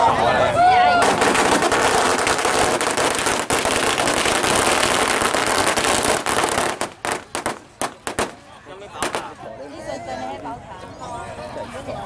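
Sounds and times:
firecrackers crackling: 0:00.9 - 0:09.5.

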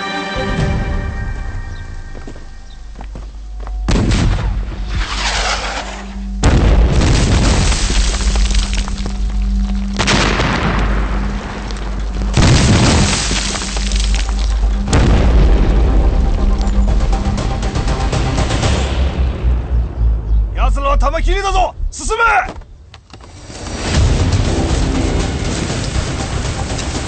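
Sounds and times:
dramatic background music: 0:00.0 - 0:22.4, 0:23.3 - 0:27.0
explosions rumbling: 0:03.9 - 0:05.8, 0:06.4 - 0:17.4.

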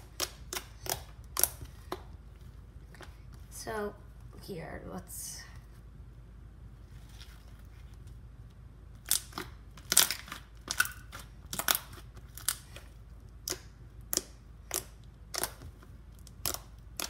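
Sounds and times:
slime crackling and popping: 0:00.0 - 0:02.2, 0:08.9 - 0:17.0.

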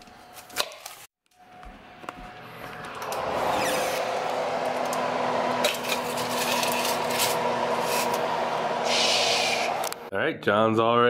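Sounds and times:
steady hum: 0:01.5 - 0:10.1
foil and metal scraping: 0:05.6 - 0:08.1.

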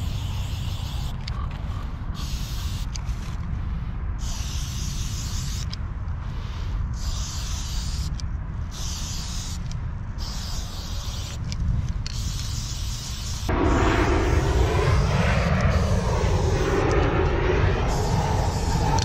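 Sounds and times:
spray-paint can spraying: 0:00.1 - 0:01.2, 0:02.2 - 0:03.2, 0:04.2 - 0:05.8, 0:07.0 - 0:13.5
low rumble: 0:13.5 - 0:19.0.

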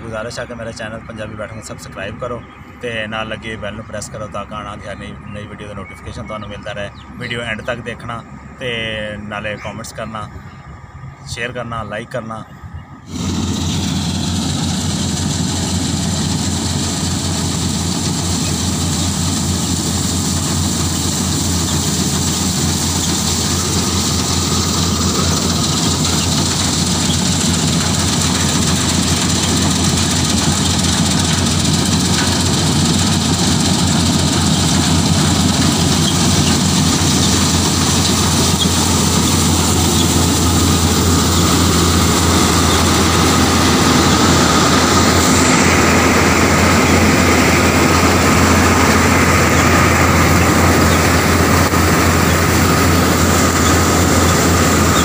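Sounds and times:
combine harvester engine running: 0:00.0 - 0:55.0.

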